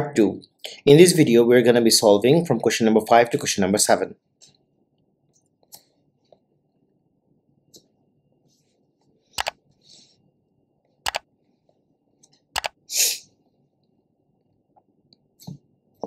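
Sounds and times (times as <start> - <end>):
mouse clicks: 9.4 - 9.6, 11.0 - 11.3, 12.5 - 12.8.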